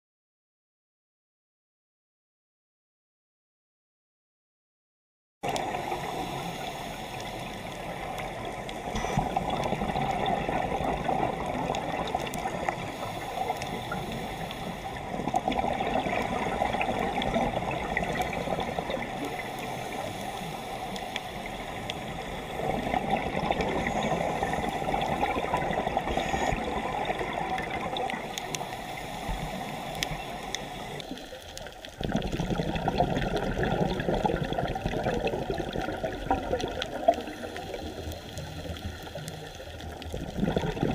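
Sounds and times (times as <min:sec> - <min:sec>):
underwater watery rush: 0:05.4 - 0:40.9
regulator bubbles surging: 0:07.1 - 0:20.0, 0:22.0 - 0:28.6, 0:29.5 - 0:40.9.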